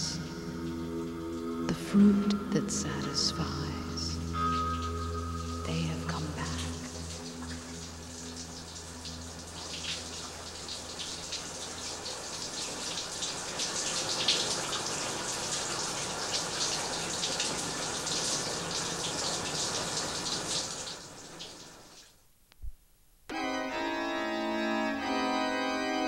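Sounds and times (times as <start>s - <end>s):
low steady hum: 0.0s - 13.7s
shower water running: 0.0s - 22.2s.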